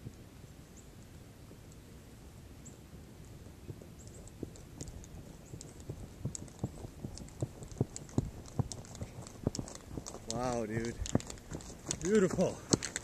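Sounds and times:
footsteps crunching through dry grass: 0:03.0 - 0:13.0.

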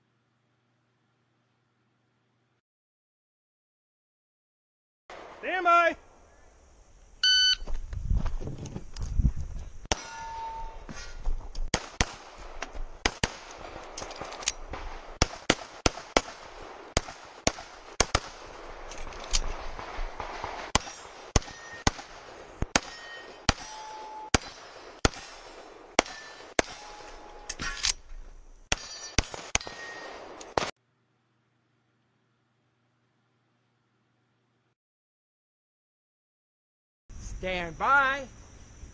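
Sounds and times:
steel targets ringing: 0:09.9 - 0:10.9, 0:20.8 - 0:22.0, 0:22.8 - 0:25.0, 0:26.0 - 0:27.8, 0:28.7 - 0:30.3
pistol shots: 0:11.7 - 0:28.0, 0:28.7 - 0:30.7.

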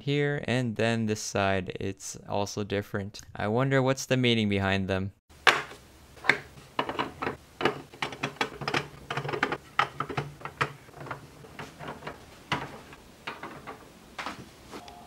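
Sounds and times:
plastic containers clicking together: 0:05.5 - 0:14.4.

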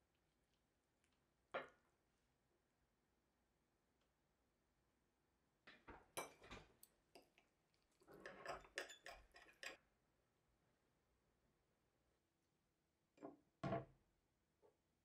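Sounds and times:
knife and fork scraping a plate: 0:08.0 - 0:09.8.

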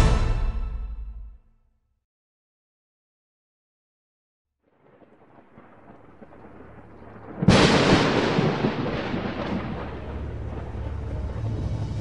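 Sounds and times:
thunder-like boom: 0:04.8 - 0:12.0
low rumbling swell: 0:08.6 - 0:12.0.

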